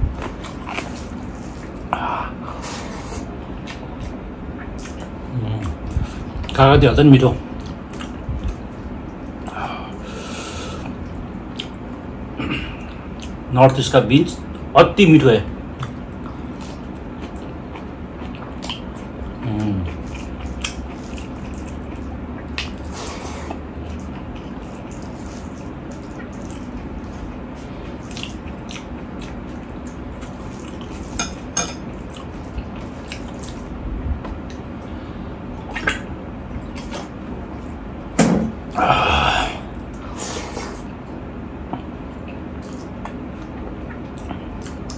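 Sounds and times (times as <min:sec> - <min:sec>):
wet chewing and lip-smacking: 0:03.1 - 0:06.6, 0:07.4 - 0:09.6, 0:10.8 - 0:11.8, 0:15.7 - 0:34.8, 0:35.4 - 0:38.0, 0:40.6 - 0:44.9.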